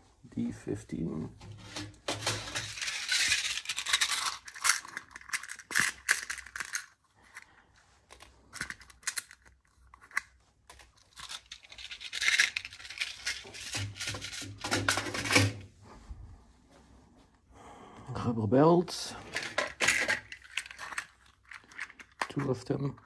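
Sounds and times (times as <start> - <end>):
plastic pieces rattling: 1.6 - 7.5, 8.1 - 15.6, 19.2 - 23.0.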